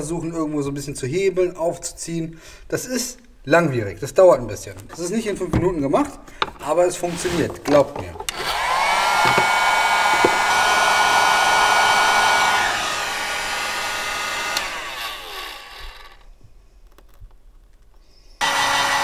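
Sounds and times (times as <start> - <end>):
fan spinning down: 8.3 - 16.2
heat gun blowing: 8.3 - 16.3, 18.4 - 19.0.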